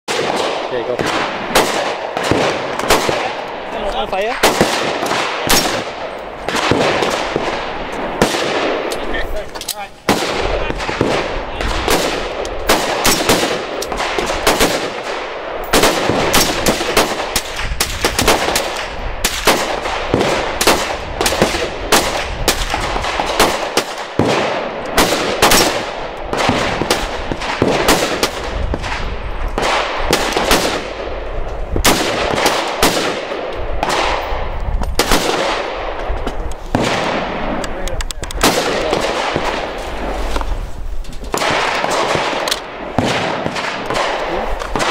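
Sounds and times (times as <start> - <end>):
gunshots with echo: 0.1 - 9.4, 10.0 - 36.1, 36.7 - 40.2, 41.3 - 44.9.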